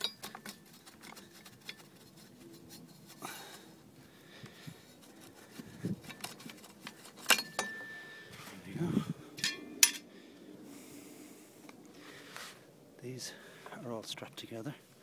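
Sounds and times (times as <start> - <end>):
metal rubbing against wood: 0.0 - 3.6, 4.6 - 7.9.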